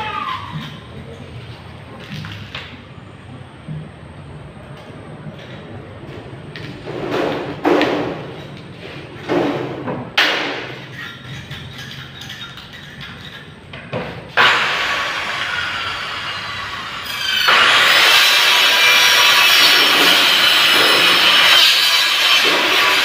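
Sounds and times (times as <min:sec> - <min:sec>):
rasping scraping on metal: 0:10.7 - 0:13.7.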